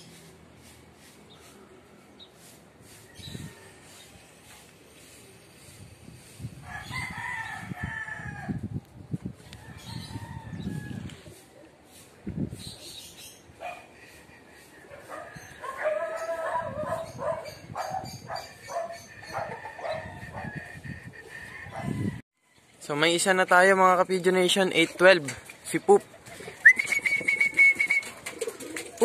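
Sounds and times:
rooster crowing: 0:06.6 - 0:08.7, 0:09.5 - 0:11.3, 0:15.6 - 0:17.0, 0:19.3 - 0:22.6.

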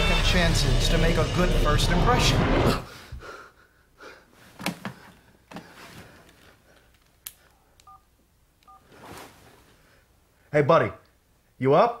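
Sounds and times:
bedclothes rustling: 0:04.3 - 0:07.2, 0:08.7 - 0:10.1.

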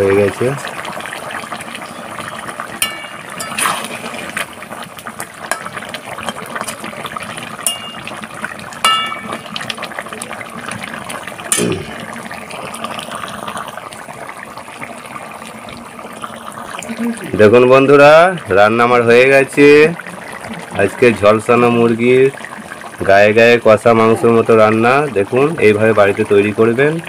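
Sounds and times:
curry boiling and bubbling: 0:00.0 - 0:27.0
metal spatula clinking on pan: 0:02.8 - 0:03.8, 0:07.6 - 0:08.1, 0:08.8 - 0:09.4.

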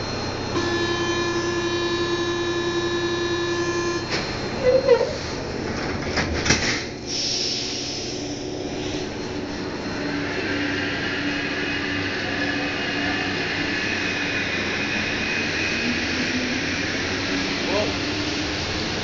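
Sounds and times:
traction motor whine: 0:00.0 - 0:05.8
train running noise: 0:00.0 - 0:19.0.

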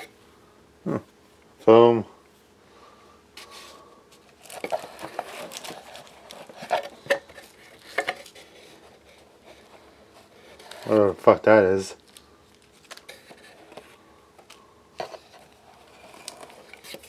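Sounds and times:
plastic bag crinkling: 0:04.3 - 0:08.4.

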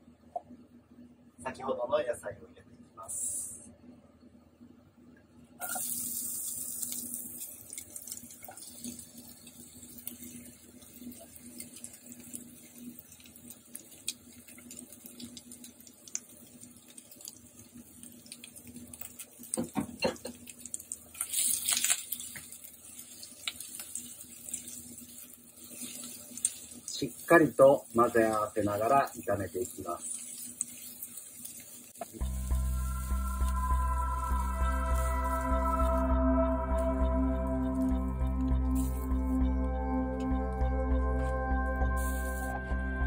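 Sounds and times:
vegetables sizzling in hot oil: 0:05.6 - 0:36.1, 0:38.7 - 0:39.4, 0:42.0 - 0:42.6.

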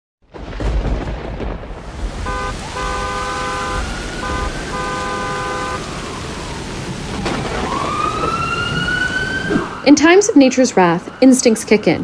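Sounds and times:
steady rain: 0:00.3 - 0:11.9
car horn honking: 0:02.2 - 0:06.0
ambulance siren: 0:02.2 - 0:12.0
sharp crack: 0:07.1 - 0:08.4.

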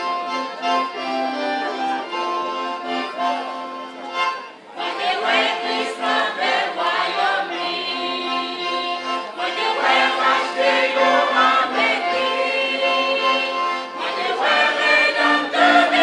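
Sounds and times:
choir singing a gospel hymn: 0:04.8 - 0:16.0.

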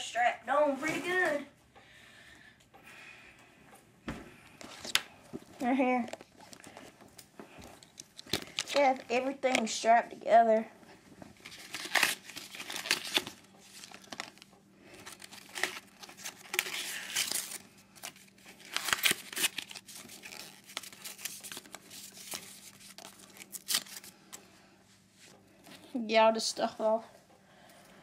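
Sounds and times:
packaging wrap tearing and crinkling: 0:11.4 - 0:24.2.

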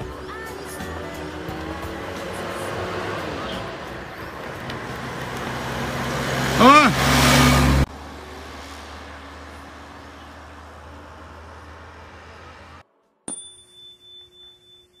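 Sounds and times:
motorcycle truck driving past: 0:00.1 - 0:12.9
bright ding chime: 0:13.3 - 0:15.0.

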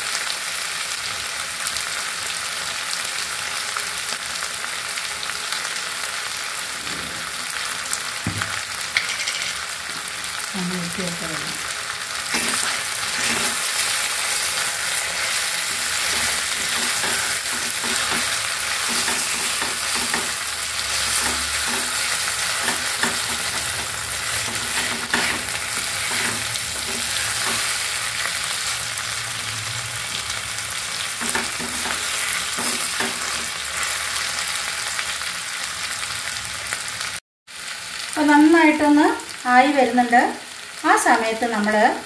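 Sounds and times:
food sizzling in a pan: 0:00.0 - 0:42.0
spatula scraping a pan: 0:12.2 - 0:28.0, 0:31.2 - 0:33.6.

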